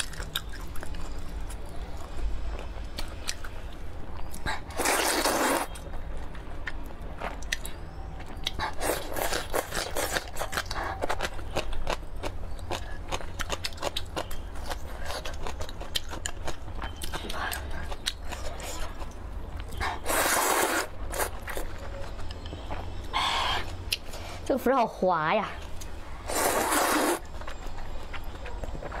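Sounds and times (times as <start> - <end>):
wet chewing: 0.0 - 24.5, 25.6 - 29.0
slurping: 4.7 - 5.8, 19.8 - 21.5, 26.2 - 27.3.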